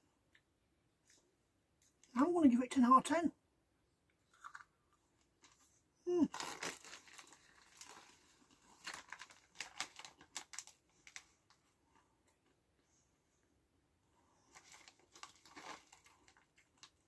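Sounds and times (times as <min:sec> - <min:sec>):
plastic crisp packet crinkling: 0:06.2 - 0:11.6, 0:14.5 - 0:17.0.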